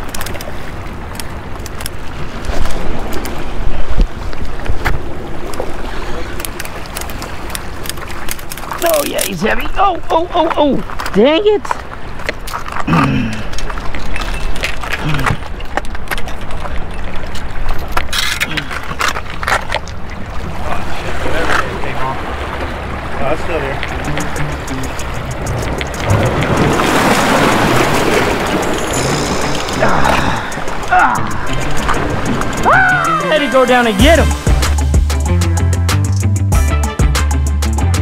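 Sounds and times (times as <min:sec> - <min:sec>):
wind rumbling on microphone: 0:00.0 - 0:35.1
water splashing against rocks: 0:00.0 - 0:35.2
steady low rumble: 0:22.1 - 0:38.0
fish thrashing at the surface: 0:25.1 - 0:34.1.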